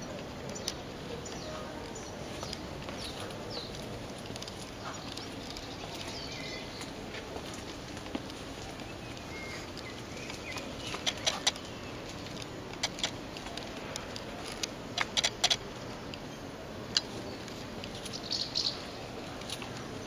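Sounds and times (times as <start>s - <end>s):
low steady hiss: 0.0s - 20.0s
bird chirps: 4.7s - 7.1s, 8.8s - 12.1s, 15.8s - 19.1s
sharp clicks: 9.1s - 16.2s.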